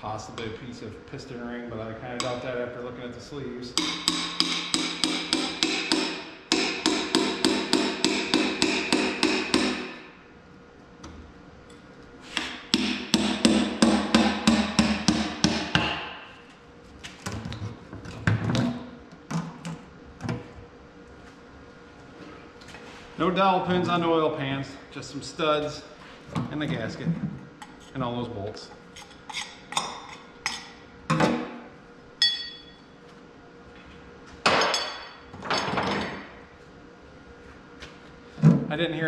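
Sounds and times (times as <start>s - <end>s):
tool tapping on ringing metal pan: 3.8s - 9.8s, 32.2s - 32.8s.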